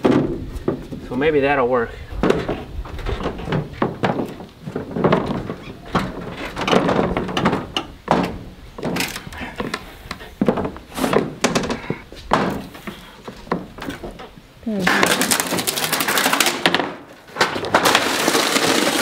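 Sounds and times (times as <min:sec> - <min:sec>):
pallet jack wheels thunking: 0:00.0 - 0:01.1, 0:02.2 - 0:09.3, 0:10.4 - 0:19.0.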